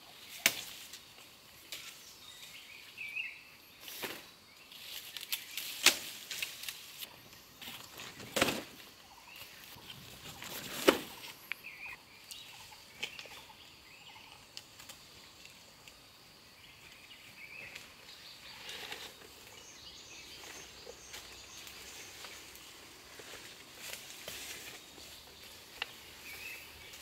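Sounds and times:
banana leaves rustling: 0.0 - 2.9, 3.8 - 11.9, 16.9 - 27.0.

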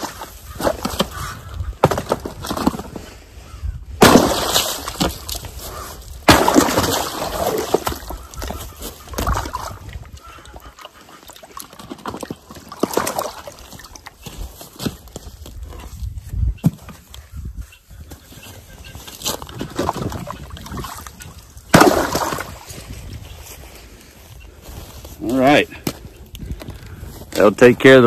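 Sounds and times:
ice cracking under tool strikes: 4.0 - 5.5, 6.2 - 8.1, 21.7 - 22.6
ice chunks knocking in water: 4.0 - 5.6, 6.2 - 10.0, 11.6 - 14.2, 19.4 - 21.1, 21.7 - 22.8
water splashing: 6.3 - 8.4, 9.0 - 14.2, 19.7 - 22.7.

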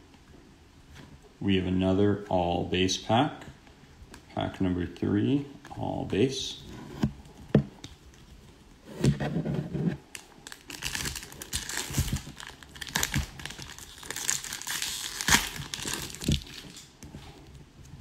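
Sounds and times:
foil wrapper tearing and crinkling: 10.1 - 17.0.

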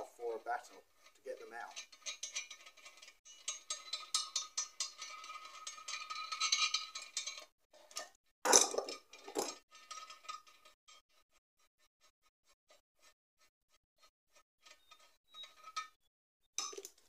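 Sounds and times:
thin steady squeal: 12.0 - 16.1.

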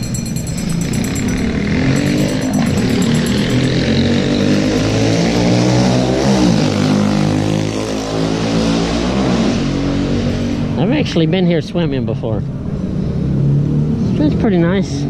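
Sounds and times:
vehicle engine running: 0.0 - 8.3.

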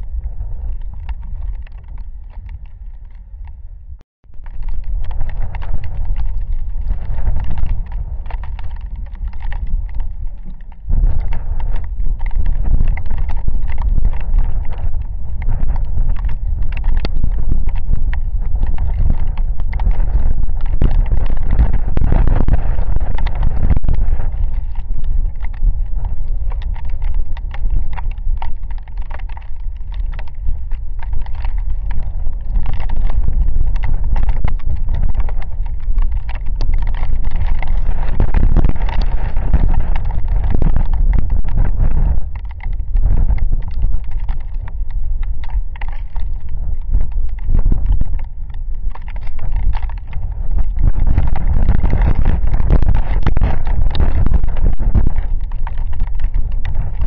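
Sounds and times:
raindrops pattering: 0.0 - 3.6, 4.2 - 57.0
wind gusts buffeting microphone: 0.0 - 57.0.

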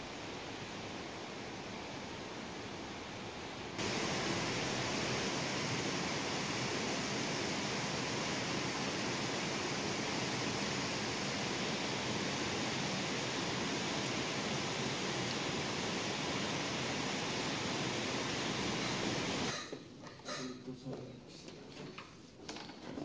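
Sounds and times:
river rushing over rocks: 3.8 - 19.5.

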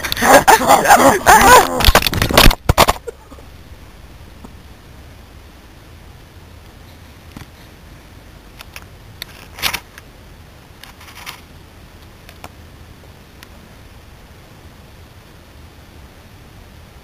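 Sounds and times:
low wind-like rumble: 0.0 - 17.0
camera handling clicks and rustles: 1.8 - 3.0, 8.6 - 10.0, 10.8 - 11.4.

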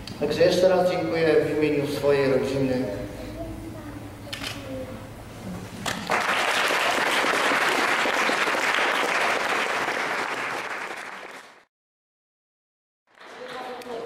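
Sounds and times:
audience applauding: 6.0 - 11.7, 13.1 - 14.0.

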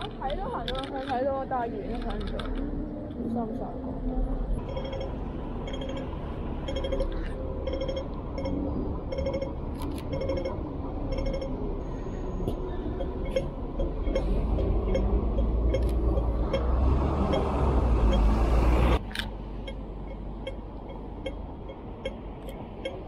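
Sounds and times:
buses passing: 0.0 - 23.0
road traffic rumble: 0.0 - 23.0
pedestrian crossing signal beeping: 4.6 - 11.8, 12.4 - 18.4, 19.6 - 23.0.

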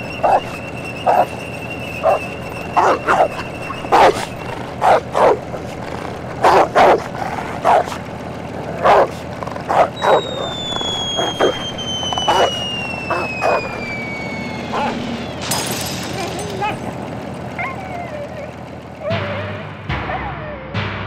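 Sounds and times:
high falling whistle: 0.0 - 5.4, 10.0 - 17.0
dog barking: 0.2 - 1.4, 2.0 - 8.0, 8.6 - 11.6, 12.2 - 13.8, 14.7 - 15.1.

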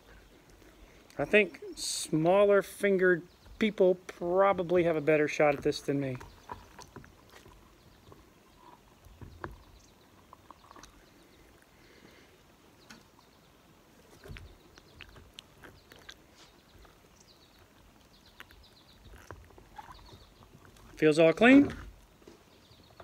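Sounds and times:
faint bird chirps: 6.2 - 21.6.

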